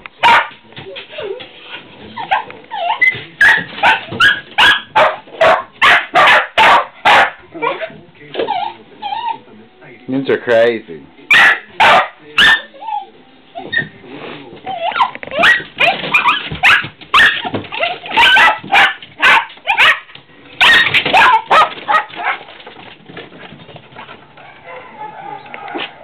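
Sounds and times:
small dogs barking: 0.2 - 0.6, 2.2 - 7.9, 11.3 - 13.1, 14.7 - 22.6, 24.4 - 26.0
dog yips and whines: 2.2 - 5.1, 7.6 - 9.4, 12.4 - 13.9, 14.7 - 20.0, 20.6 - 22.4.

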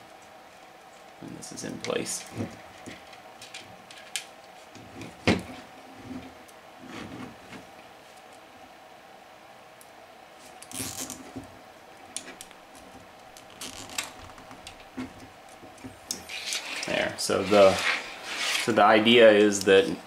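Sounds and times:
faint steady hum: 0.0 - 20.0
wire bundle rustling: 12.1 - 19.0.

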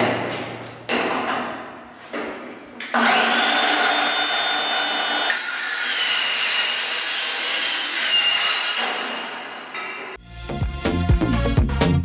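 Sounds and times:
circular saw cutting metal: 3.0 - 9.6.

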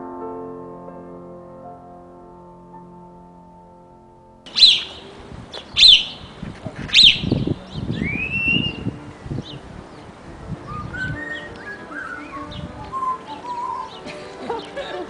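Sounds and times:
soft piano music: 0.0 - 6.4, 7.0 - 15.0
loud sharp bird chirps: 4.5 - 9.6
whistled bird call: 4.5 - 9.6, 10.6 - 14.8.

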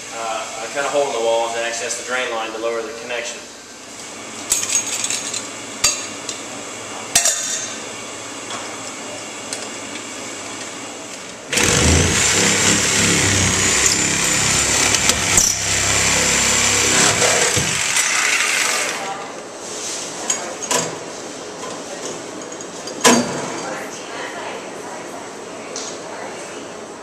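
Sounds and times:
power saw cutting: 11.5 - 19.2.

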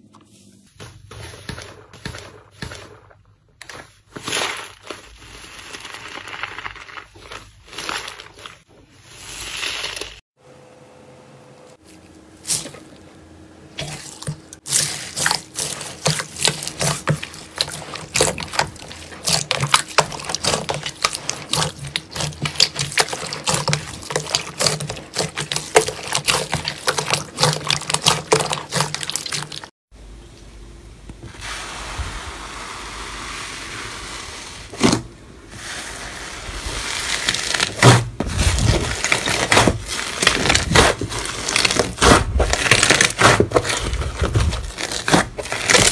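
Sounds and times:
slime squishing and squelching: 0.6 - 10.2, 13.7 - 29.7, 33.4 - 45.9
slime crackling and popping: 36.9 - 45.9.

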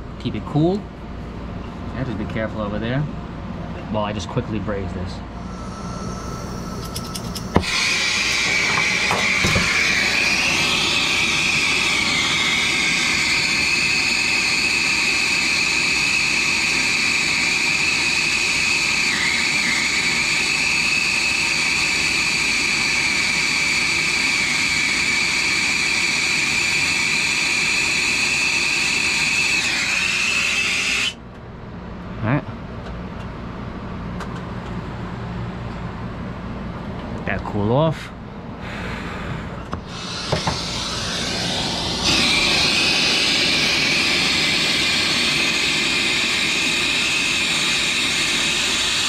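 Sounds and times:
torch flame hissing and whistling: 5.4 - 31.2, 38.6 - 49.0.

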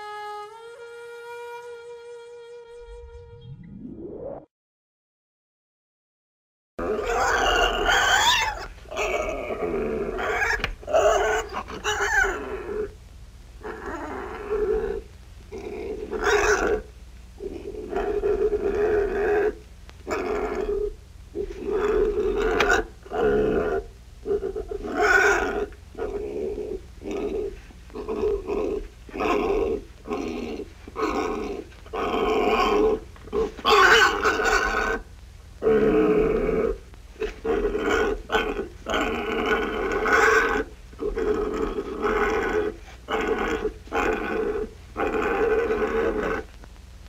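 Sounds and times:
pig grunting: 13.6 - 35.0, 35.6 - 46.5.

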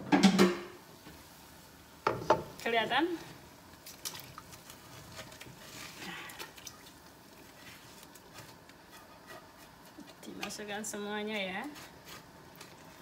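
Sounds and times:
spatula scraping frying pan: 7.5 - 13.0.

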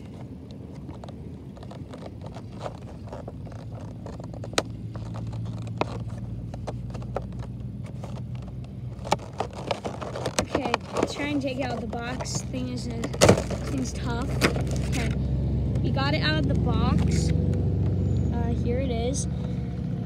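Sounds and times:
cardboard box clicks and scrapes: 0.0 - 15.2
vehicle passing by rumbling: 10.9 - 20.0.

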